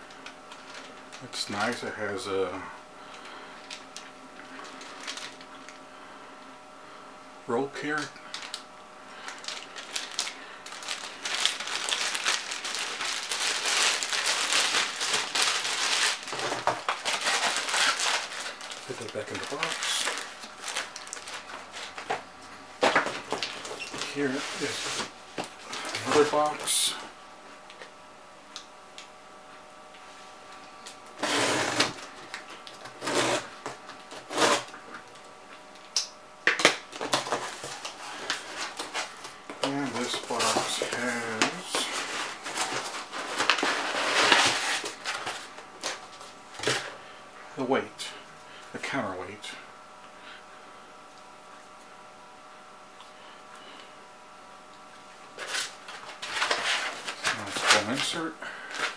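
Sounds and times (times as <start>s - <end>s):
plastic bag crinkling: 3.1s - 5.8s, 8.0s - 22.2s, 36.9s - 46.8s
cardboard rustling: 9.4s - 22.2s, 37.0s - 46.8s
knife slitting packing tape: 33.0s - 33.5s.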